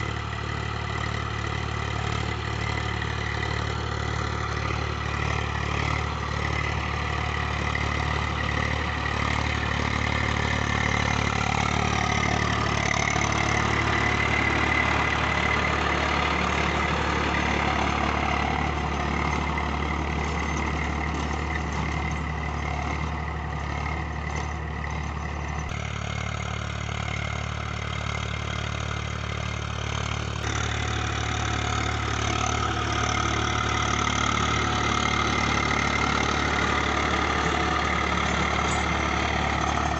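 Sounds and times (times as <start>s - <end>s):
tractor diesel engine running: 0.0s - 39.9s
tilling blades rasping in soil: 30.1s - 39.9s.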